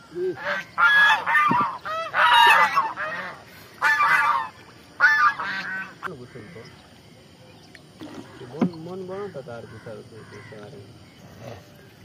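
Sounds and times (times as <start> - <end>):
geese honking: 0.4 - 6.7.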